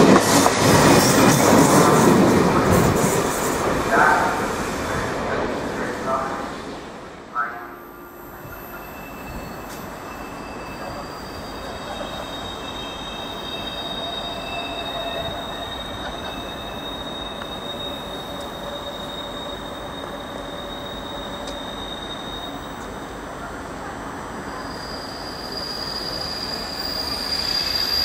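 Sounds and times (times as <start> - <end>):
low train rumble: 0.0 - 28.0
train wheels squealing: 7.8 - 23.2, 24.2 - 28.0.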